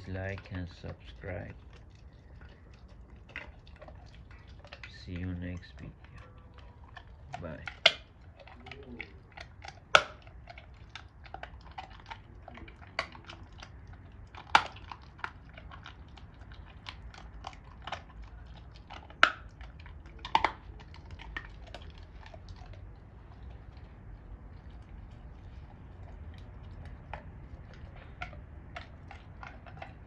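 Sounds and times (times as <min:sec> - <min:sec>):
dog gnawing a bone: 0:00.0 - 0:30.0
sharp bone cracks: 0:06.9 - 0:22.8.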